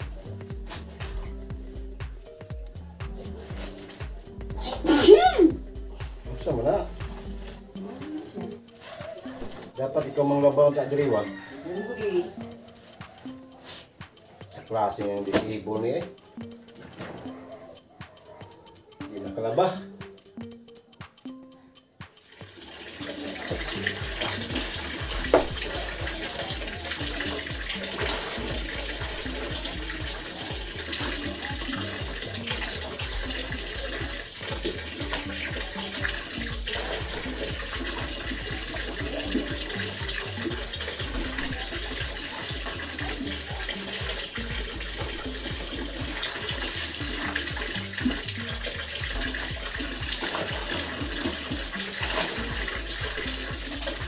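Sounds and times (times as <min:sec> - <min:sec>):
water splashing in a basin: 0:03.0 - 0:13.4, 0:22.0 - 0:54.0
water streaming off clothes: 0:22.2 - 0:54.0.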